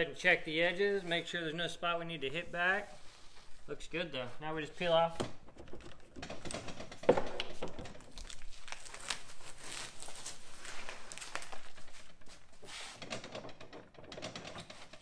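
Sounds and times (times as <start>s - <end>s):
paper film peeling and crackling: 7.4s - 12.7s.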